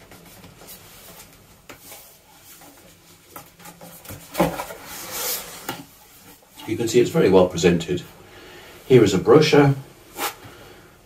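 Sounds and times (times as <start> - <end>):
cardboard rubbing: 0.2 - 6.3
cardboard lid scraping: 4.1 - 5.9.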